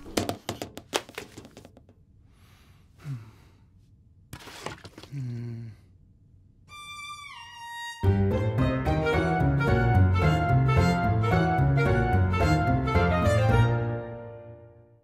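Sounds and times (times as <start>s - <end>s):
man sighing wearily: 3.0s - 3.6s, 5.0s - 5.9s.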